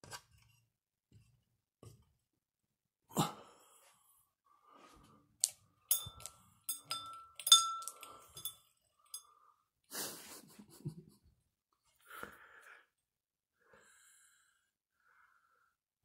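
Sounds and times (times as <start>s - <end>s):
clinks on light fixture: 5.9s - 9.3s.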